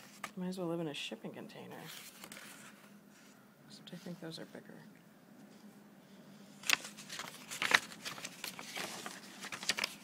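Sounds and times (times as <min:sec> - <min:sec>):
paper and cardboard rustling: 0:00.0 - 0:00.4, 0:01.7 - 0:03.4, 0:06.5 - 0:10.0.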